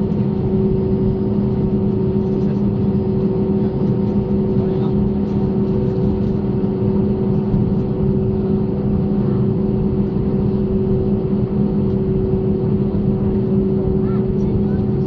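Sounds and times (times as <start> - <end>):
jet engines humming in cabin: 0.0 - 15.0.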